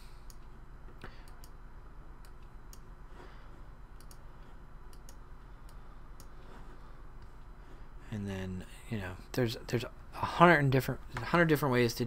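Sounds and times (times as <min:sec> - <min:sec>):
low room hum: 0:00.0 - 0:12.0
computer mouse clicks: 0:00.2 - 0:01.6, 0:04.0 - 0:04.3, 0:04.9 - 0:06.4.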